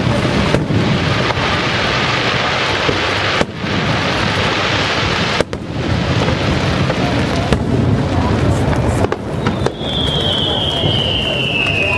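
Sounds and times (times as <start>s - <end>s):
fireworks shells bursting: 8.4s - 11.9s.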